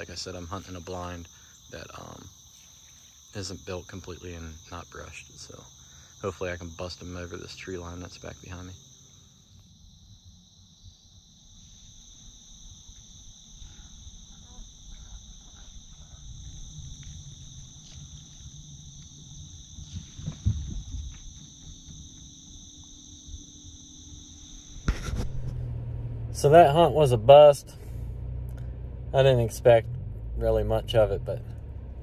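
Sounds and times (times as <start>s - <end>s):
insects trilling: 0.0s - 32.0s
low rumble on microphone: 12.0s - 22.7s, 24.7s - 32.0s
microphone bumps: 19.6s - 22.3s, 24.8s - 25.6s.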